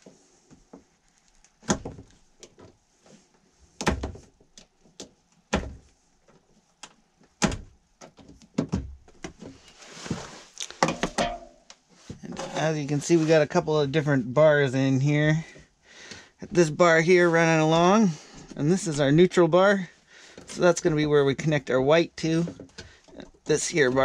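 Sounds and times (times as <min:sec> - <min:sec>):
rustling scrape: 0:09.5 - 0:10.7, 0:11.9 - 0:13.6.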